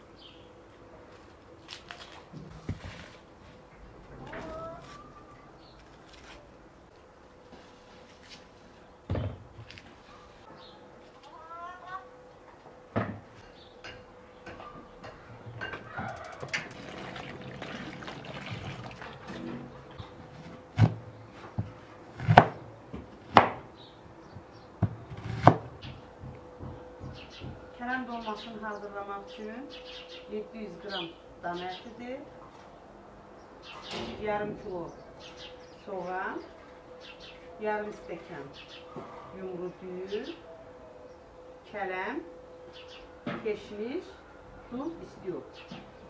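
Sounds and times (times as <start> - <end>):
cleaver chopping on wooden board: 22.2 - 22.6, 23.3 - 23.6, 25.1 - 25.7.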